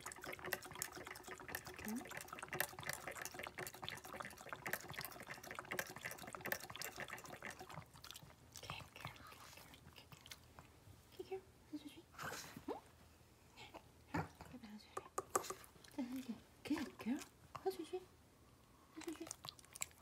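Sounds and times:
dog licking water bottle nozzle: 0.0 - 10.4.

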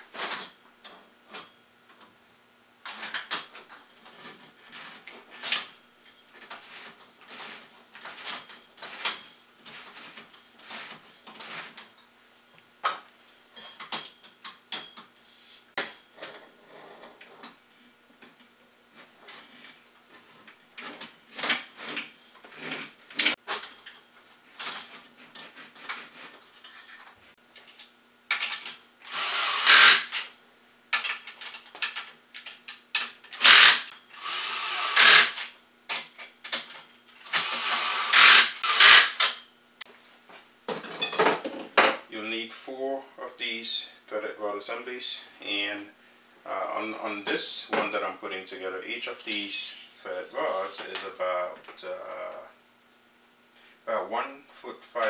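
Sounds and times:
cordless drill driving fasteners: 29.0 - 30.3, 33.3 - 35.5, 37.2 - 39.4.

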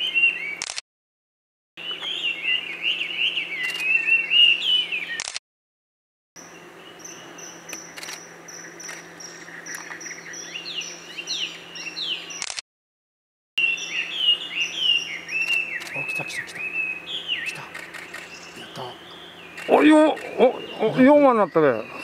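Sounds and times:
kingfishers calling: 13.6 - 22.0.

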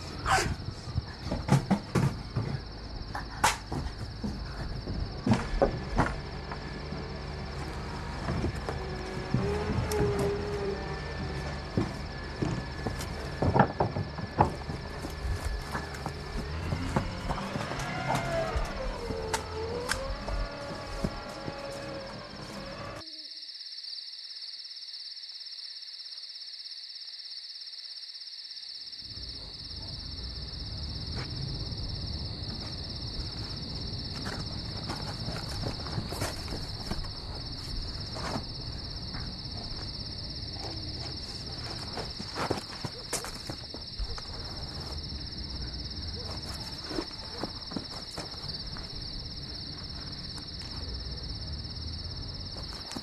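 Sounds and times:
crickets chirping: 0.0 - 53.0.

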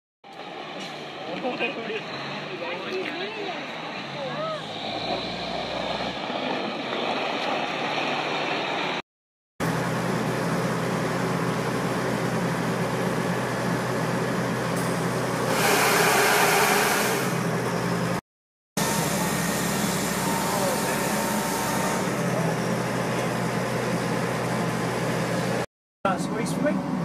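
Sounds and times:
diesel engine and pump running: 9.6 - 18.2, 18.8 - 27.0
rushing hiss of water spray: 15.5 - 17.4.

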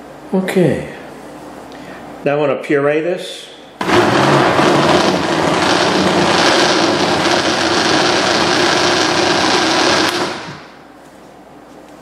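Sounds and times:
blender motor running: 3.8 - 10.8.

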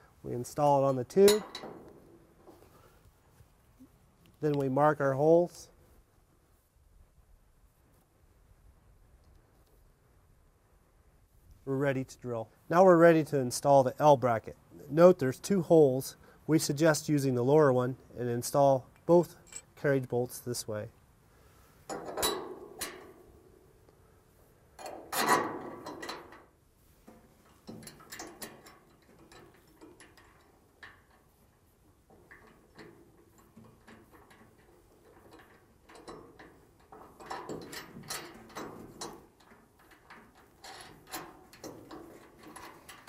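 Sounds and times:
metal bolts and tools clattering: 1.1 - 2.7, 18.9 - 20.4, 21.9 - 23.2, 24.8 - 26.5, 27.1 - 31.4, 32.0 - 43.0.

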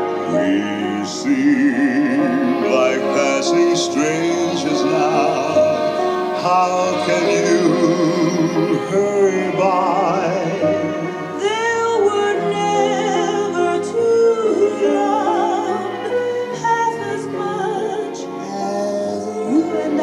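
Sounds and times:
person singing with vibrato: 0.0 - 20.0
sustained musical accompaniment: 0.0 - 20.0.

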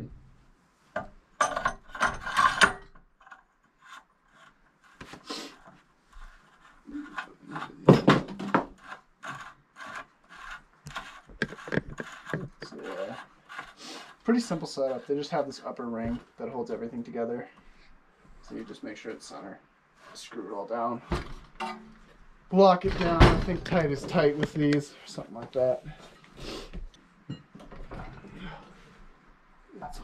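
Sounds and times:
metal parts knocking and scraping: 1.0 - 3.4, 7.0 - 13.8.

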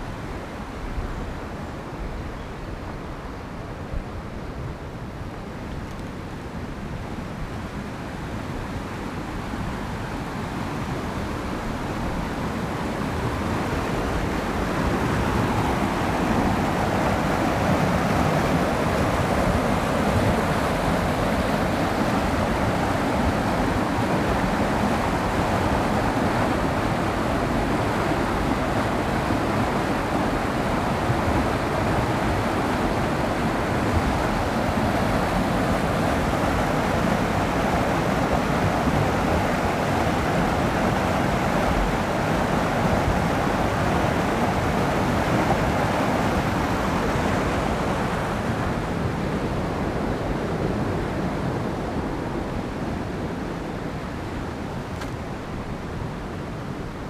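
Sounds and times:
water rushing over rocks: 10.5 - 53.0.

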